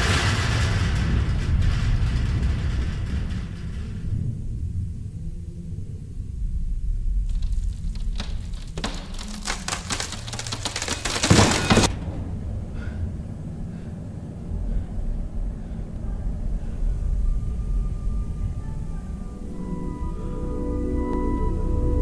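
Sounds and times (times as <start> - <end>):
rapid clattering rattle: 0.0 - 4.7
low rumble: 0.0 - 10.8, 11.8 - 22.0.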